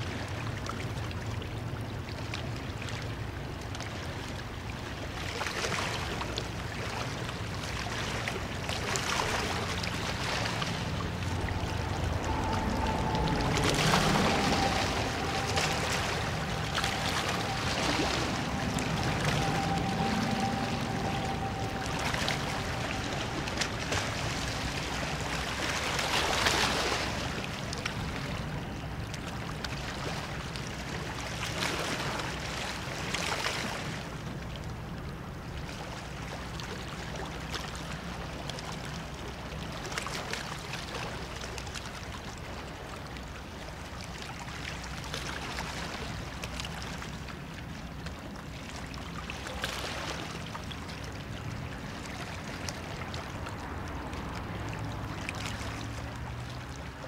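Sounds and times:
waves washing against stone bank: 3.9s - 34.4s
steady low hum: 8.3s - 30.8s.

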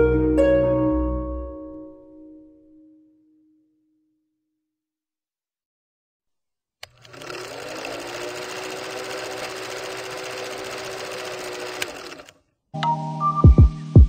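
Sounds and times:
film projector clatter: 6.8s - 12.4s.

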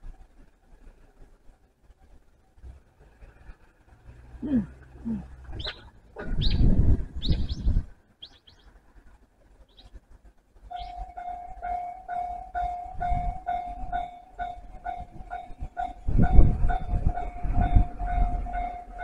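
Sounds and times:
birds chirping: 5.0s - 8.8s, 9.6s - 10.0s, 10.7s - 13.1s
level crossing alarm bell: 10.7s - 19.0s.

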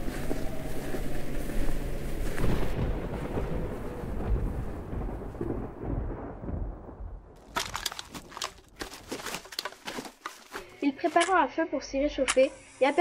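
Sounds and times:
rumbling storm wind: 0.0s - 8.8s
campfire crackling: 7.4s - 11.2s.

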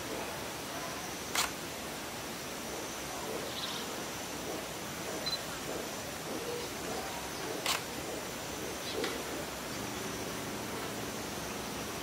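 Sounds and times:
background hiss: 0.0s - 12.0s
camera shutter click: 1.3s - 1.6s, 7.6s - 7.9s.

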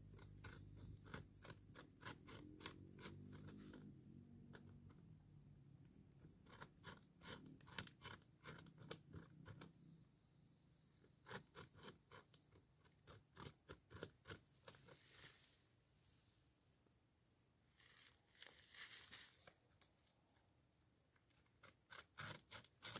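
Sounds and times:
beaver gnawing wood: 0.0s - 9.9s, 11.0s - 15.3s, 21.0s - 22.9s.

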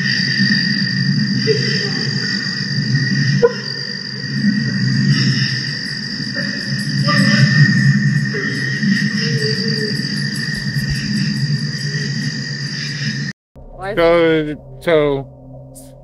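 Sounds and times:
night insects chorus: 0.0s - 13.3s
animal chattering call: 5.0s - 12.3s.

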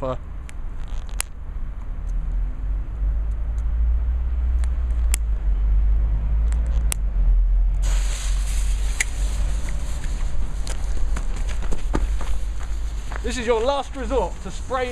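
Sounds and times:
low rumble: 1.4s - 14.9s
firework fountain hissing: 7.8s - 11.0s.

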